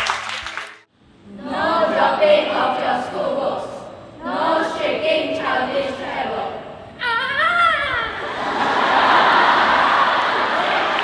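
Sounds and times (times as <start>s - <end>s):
students reciting in unison: 1.3s - 6.8s.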